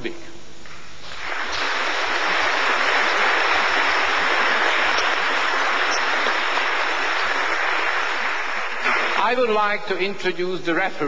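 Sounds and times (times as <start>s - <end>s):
audience applauding: 1.0s - 9.7s.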